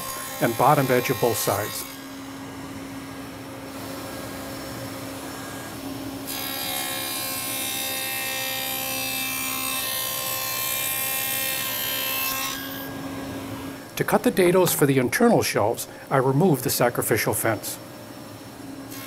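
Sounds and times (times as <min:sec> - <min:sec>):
table saw humming: 0:00.0 - 0:14.8.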